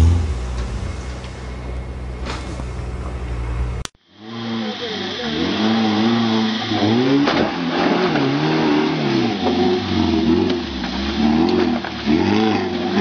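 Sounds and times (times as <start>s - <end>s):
jeep engine revving hard: 0.0s - 0.4s, 4.2s - 13.0s.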